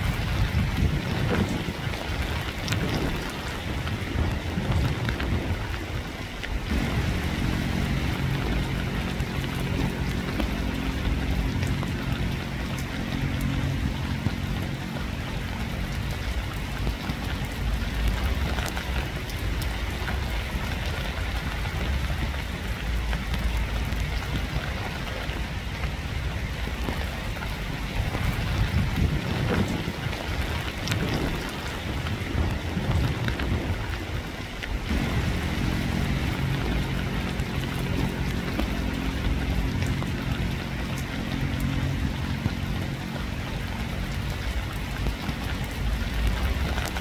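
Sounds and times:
steady rain falling: 0.0s - 47.0s
low steady hum: 4.0s - 29.1s, 34.8s - 47.0s.

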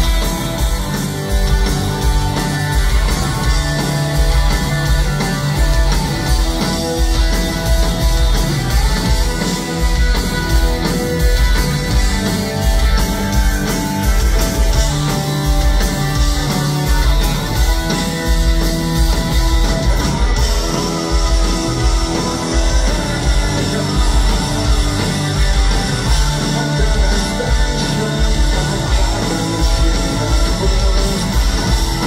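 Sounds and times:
bass guitar: 0.0s - 32.0s
distorted electric guitars: 0.0s - 32.0s
drums: 0.0s - 32.0s
keyboard: 0.0s - 32.0s.

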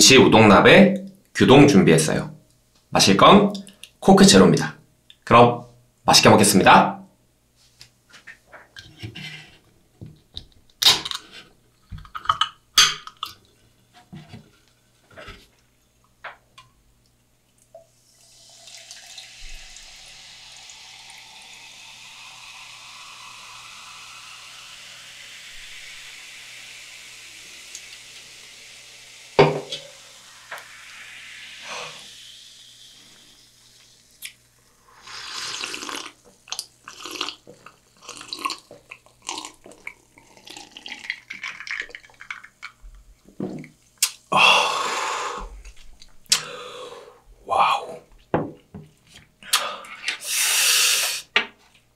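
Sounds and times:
soda fizzing: 17.7s - 46.9s, 50.2s - 51.3s
person gulping drink: 35.0s - 42.8s.

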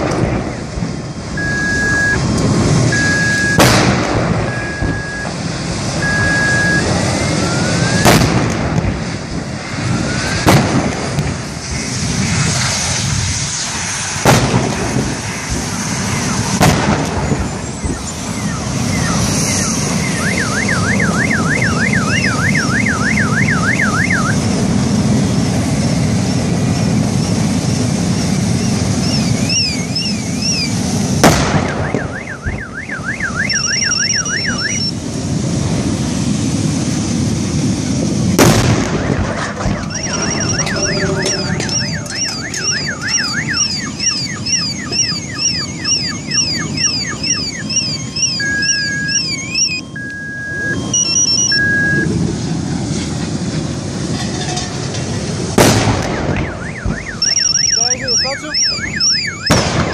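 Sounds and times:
fire roaring: 0.0s - 59.9s
car alarms warbling: 1.3s - 3.7s, 4.4s - 8.1s, 15.6s - 16.6s, 17.3s - 24.5s, 28.6s - 30.8s, 31.6s - 35.0s, 39.0s - 52.2s, 56.1s - 59.9s
gas cylinders exploding: 2.2s - 6.9s, 7.8s - 17.9s, 31.1s - 32.2s, 38.2s - 44.5s, 53.9s - 56.8s, 59.5s - 59.9s.

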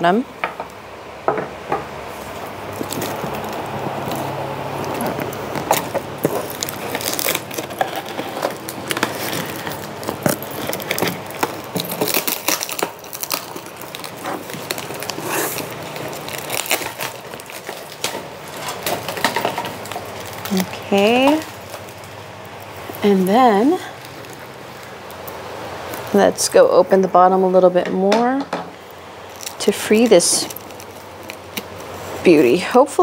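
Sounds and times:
cardboard rustling and scraping: 2.0s - 25.0s.

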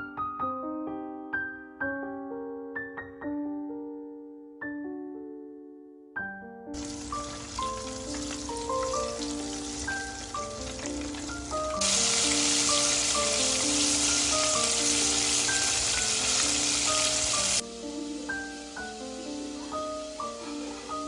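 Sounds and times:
chicken sizzling in hot oil: 6.8s - 21.0s.

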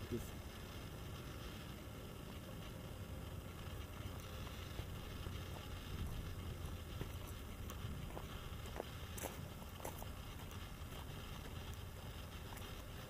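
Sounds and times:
wind rumble on microphone: 5.8s - 8.8s
footsteps on concrete and gravel: 7.0s - 12.9s.

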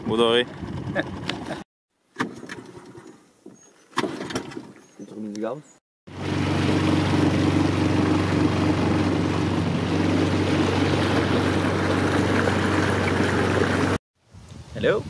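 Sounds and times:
outboard motor running: 0.0s - 1.6s, 6.1s - 14.0s
water rushing along hull: 6.1s - 14.0s.

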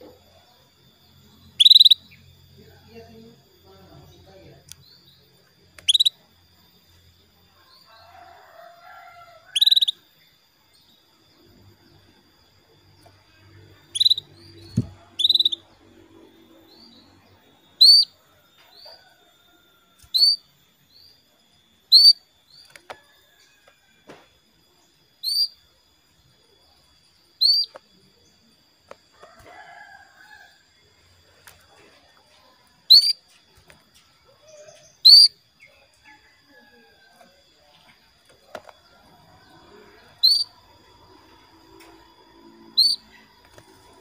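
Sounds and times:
canary chirping: 1.3s - 2.3s, 5.8s - 6.2s, 9.5s - 10.1s, 13.8s - 15.8s, 16.7s - 18.2s, 20.0s - 21.2s, 21.8s - 22.9s, 25.1s - 25.6s, 27.3s - 27.8s, 32.9s - 33.3s, 34.4s - 35.7s, 40.0s - 40.8s, 42.7s - 44.0s.

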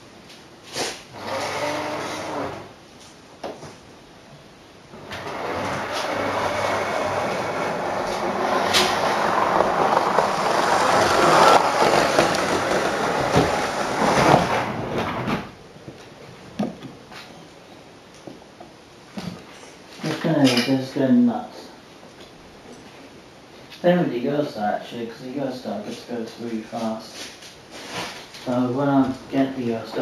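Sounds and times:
model train rattling past: 5.2s - 14.9s.

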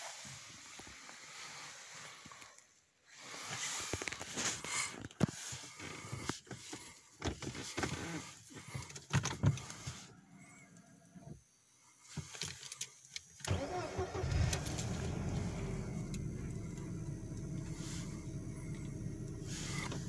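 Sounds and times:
rustling in car cabin: 13.5s - 20.0s.

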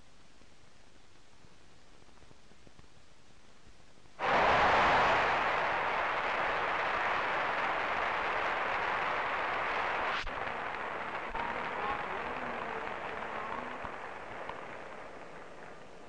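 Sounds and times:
crowd applauding: 4.2s - 16.0s.

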